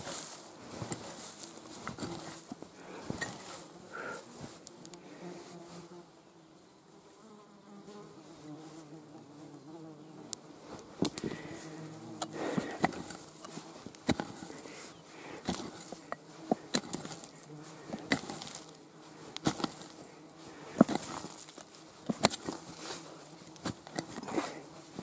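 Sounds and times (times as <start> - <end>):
flying insect buzzing: 0.7 - 25.0
hand pick striking soil: 0.8 - 3.6, 11.0 - 11.5, 12.1 - 14.7, 15.3 - 20.0, 20.7 - 24.6.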